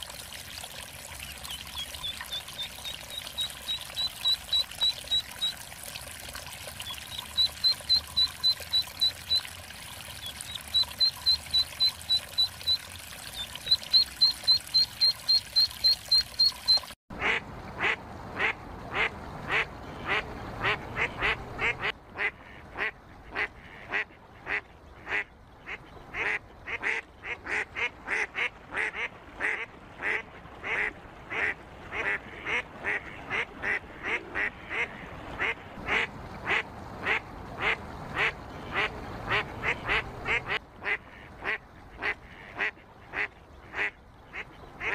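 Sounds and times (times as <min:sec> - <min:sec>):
faint water lapping: 0:00.0 - 0:44.9
goslings peeping: 0:01.2 - 0:05.6, 0:06.8 - 0:16.9
duck quacks: 0:17.2 - 0:44.9.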